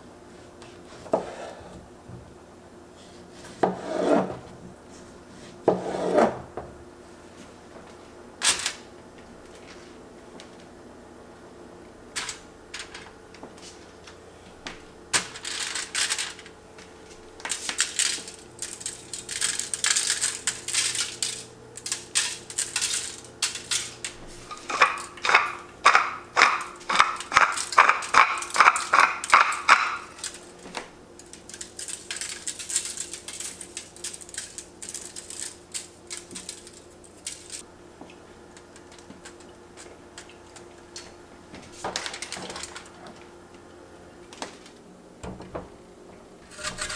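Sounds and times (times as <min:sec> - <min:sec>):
faint steady hum: 0:00.0 - 0:46.9
crackly rustling: 0:12.1 - 0:25.4, 0:28.5 - 0:44.9
pepper mill grinding: 0:15.2 - 0:16.5, 0:17.3 - 0:37.7, 0:46.4 - 0:46.9.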